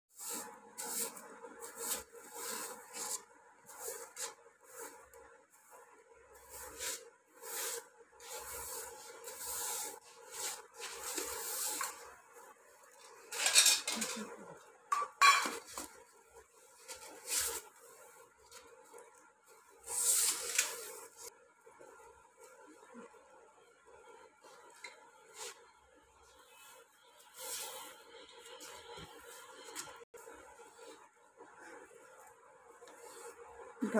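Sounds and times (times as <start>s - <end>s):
broom swishing on concrete: 0.1s - 13.3s, 16.6s - 18.7s, 19.5s - 21.4s, 24.4s - 31.9s.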